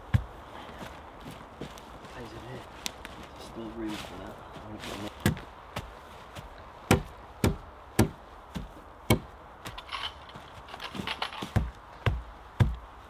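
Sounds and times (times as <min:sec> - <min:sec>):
rustling in leaf litter: 0:01.8 - 0:05.3.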